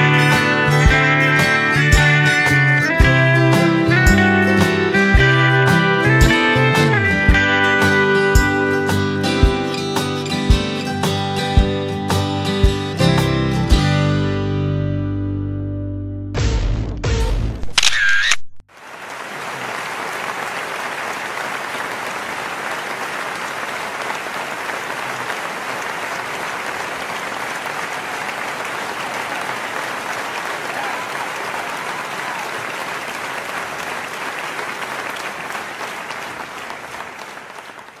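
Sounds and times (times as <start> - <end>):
crowd applause: 18.7 - 38.0.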